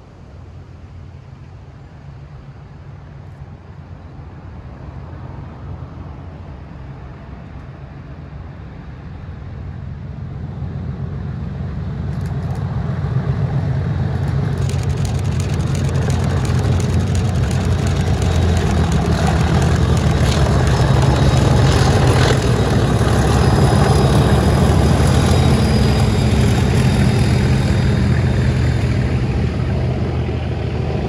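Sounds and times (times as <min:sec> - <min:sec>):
wheel and rail noise: 0:01.4 - 0:31.0
diesel locomotive engines throbbing: 0:09.1 - 0:31.0.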